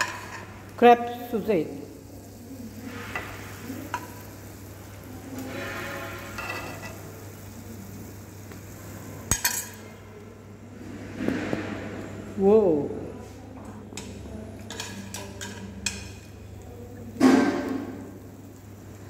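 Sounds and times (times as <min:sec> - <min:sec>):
metal utensils against pan: 0:00.0 - 0:01.2, 0:02.8 - 0:04.3, 0:05.2 - 0:07.2, 0:09.2 - 0:10.0, 0:13.9 - 0:16.4
sauce sizzling in a pan: 0:00.0 - 0:10.8, 0:14.5 - 0:19.0.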